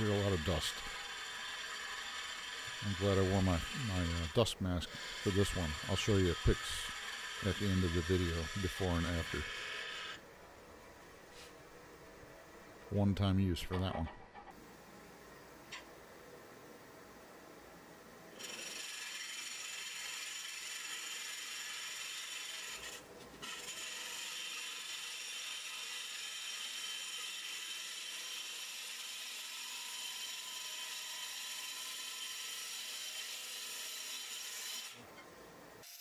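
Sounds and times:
gouge cutting wood on a lathe: 0:00.0 - 0:10.2, 0:18.4 - 0:35.0.

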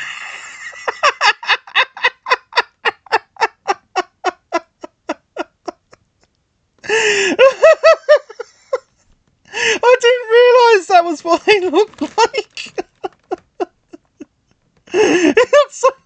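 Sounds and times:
person laughing hard: 0:00.0 - 0:06.0, 0:06.8 - 0:08.9, 0:11.3 - 0:14.3, 0:14.9 - 0:16.0.

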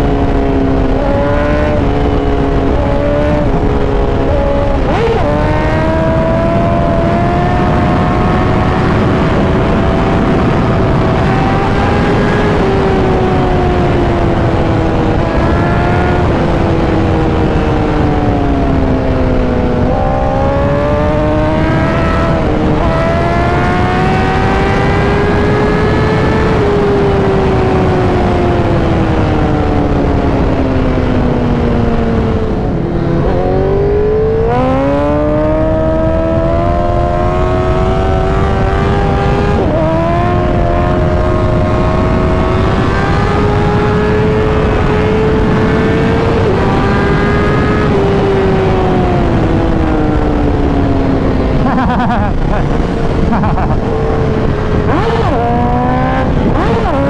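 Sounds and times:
motorcycle engine revving: 0:00.0 - 0:57.0
wind rush: 0:00.0 - 0:57.0.

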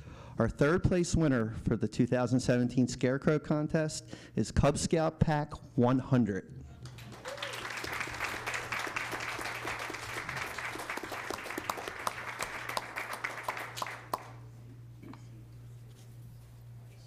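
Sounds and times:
audience applauding: 0:06.9 - 0:14.4.

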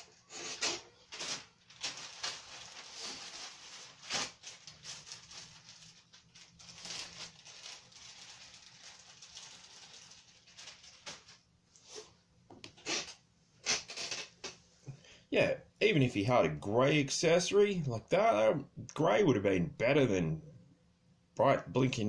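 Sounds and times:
plastic toys rustling: 0:00.5 - 0:11.9.

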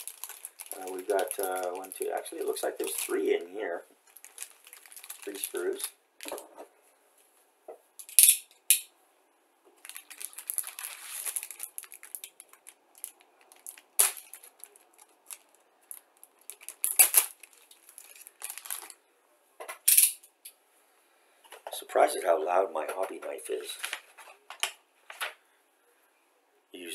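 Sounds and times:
plastic film crinkling: 0:00.0 - 0:06.6, 0:09.8 - 0:19.0
person speaking: 0:00.7 - 0:03.9, 0:05.2 - 0:06.0, 0:21.7 - 0:24.0.

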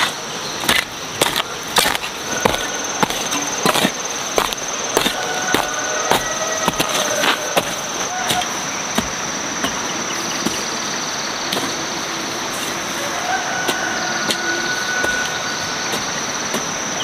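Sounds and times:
garden hoe chopping dry soil: 0:00.0 - 0:10.7
insects chirring: 0:00.0 - 0:17.0.

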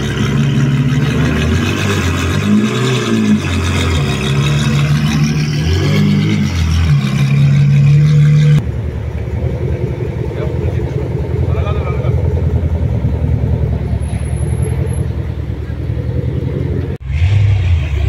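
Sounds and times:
car engine revving: 0:00.0 - 0:18.0
quiet engine idling: 0:08.6 - 0:17.0.

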